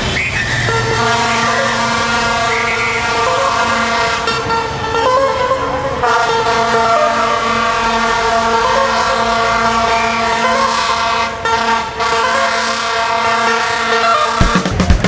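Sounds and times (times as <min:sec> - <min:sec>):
vehicle horns blasting: 0:00.0 - 0:14.6
passing traffic: 0:00.0 - 0:15.0.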